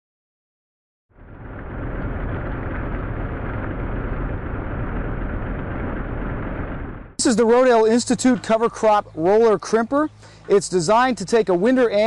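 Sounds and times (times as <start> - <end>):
tractor engine running: 1.1 - 12.0.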